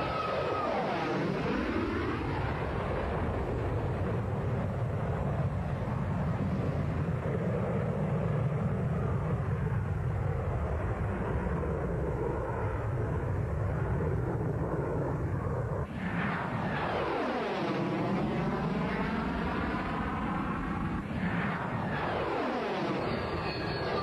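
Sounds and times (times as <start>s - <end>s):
phasing jet whine: 0.0s - 4.0s, 15.3s - 24.0s
jet fighter flying low past: 0.0s - 24.0s.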